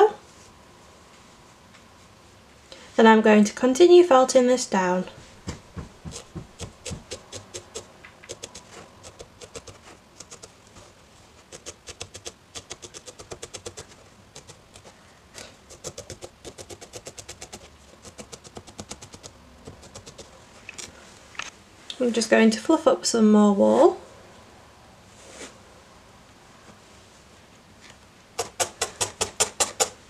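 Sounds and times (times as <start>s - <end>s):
felting needle poking wool: 5.3s - 10.6s, 11.4s - 20.9s, 28.4s - 30.0s.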